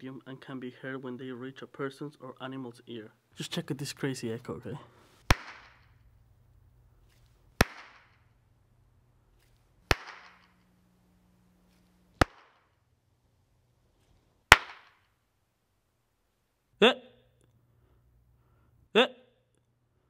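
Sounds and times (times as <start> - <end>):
hand claps echoing: 5.3 - 5.9, 7.6 - 8.2, 9.9 - 10.5, 14.5 - 15.0.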